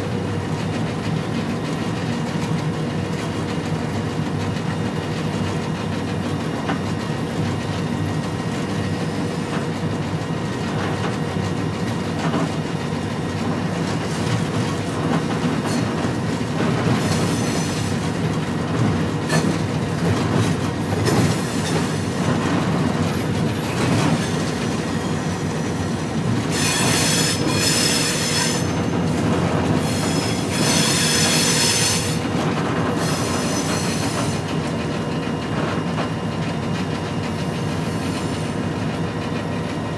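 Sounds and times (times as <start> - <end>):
locomotive engine rumble: 0.0 - 39.9
steel wheel squeal: 17.0 - 18.0, 21.0 - 22.2, 23.1 - 34.6.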